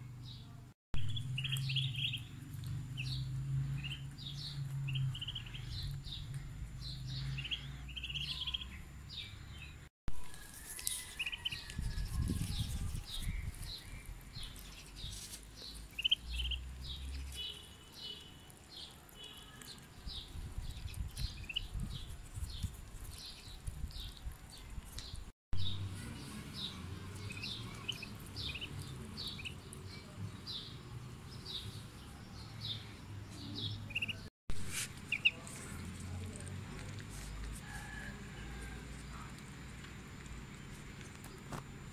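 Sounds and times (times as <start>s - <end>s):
ducklings peeping: 1.1s - 9.7s, 11.2s - 15.1s, 15.8s - 25.0s, 26.0s - 30.0s, 33.6s - 34.3s, 35.1s - 35.5s.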